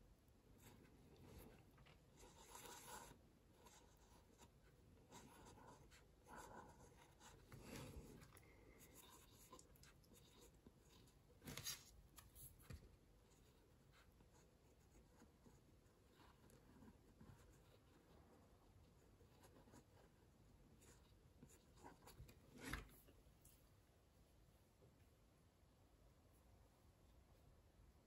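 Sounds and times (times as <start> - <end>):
pen nib scratching paper: 0.6 - 11.8.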